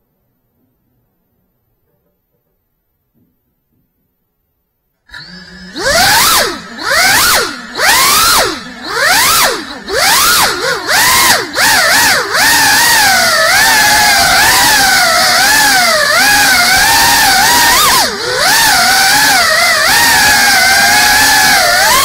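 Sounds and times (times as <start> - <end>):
quadcopter motors whining: 5.1 - 22.0.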